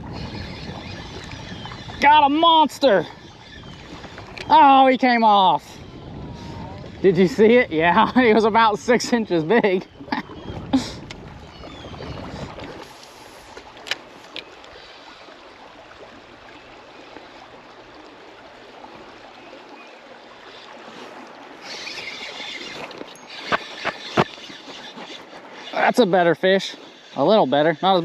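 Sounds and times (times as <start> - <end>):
river water rushing: 10.7 - 28.0.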